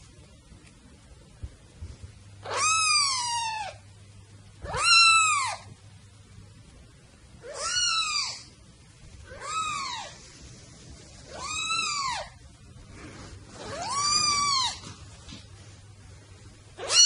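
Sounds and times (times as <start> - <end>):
kitten meowing: 2.4 - 3.8, 4.6 - 5.7, 7.4 - 8.5, 9.3 - 10.2, 11.3 - 12.4, 13.6 - 14.8, 16.8 - 17.0.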